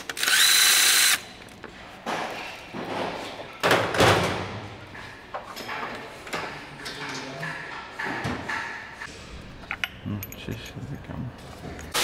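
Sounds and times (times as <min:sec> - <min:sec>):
metal tools knocking and clanking: 0:05.3 - 0:12.0.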